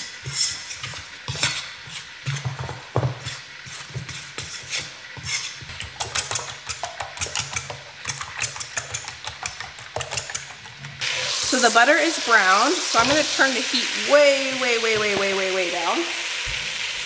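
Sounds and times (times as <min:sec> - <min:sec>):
fork beating eggs: 0:00.0 - 0:12.1
fork scraping a metal pan: 0:00.0 - 0:12.1
butter crackling in a pan: 0:00.0 - 0:17.0.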